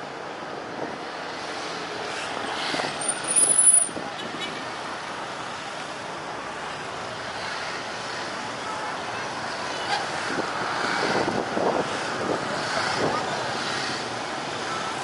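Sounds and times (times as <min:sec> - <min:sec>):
distant traffic: 0:00.0 - 0:15.0
faint voices of bystanders: 0:07.8 - 0:15.0
wind on microphone: 0:10.3 - 0:13.3.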